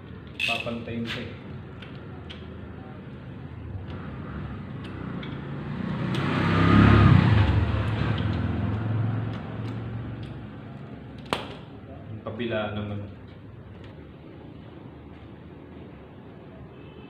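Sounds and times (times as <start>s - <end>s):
vehicle driving past: 3.6s - 11.1s.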